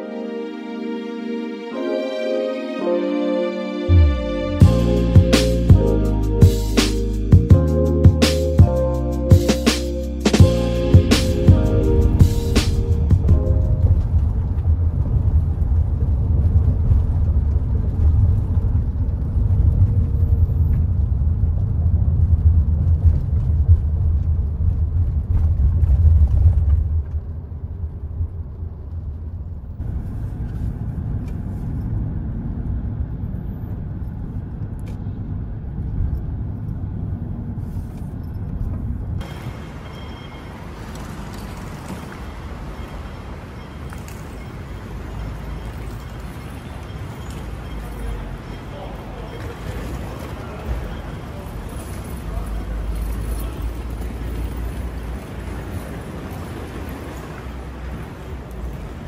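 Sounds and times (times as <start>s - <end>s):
road and engine rumble: 3.6s - 59.0s
light hissy ambience: 39.2s - 53.6s.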